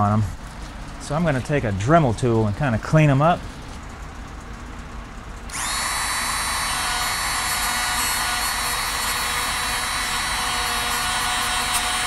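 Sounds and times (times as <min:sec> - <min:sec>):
rotary tool high whine: 0:05.4 - 0:12.0
wire brush scrubbing metal: 0:05.6 - 0:12.0.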